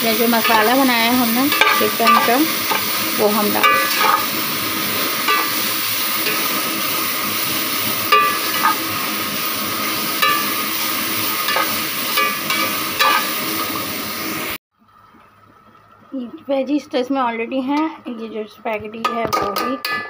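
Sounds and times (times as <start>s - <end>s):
vegetables sizzling in a pot: 0.0s - 20.0s
metal spatula scraping and clinking: 0.2s - 4.4s, 5.2s - 6.6s, 8.1s - 8.9s, 10.2s - 10.7s, 11.4s - 13.4s.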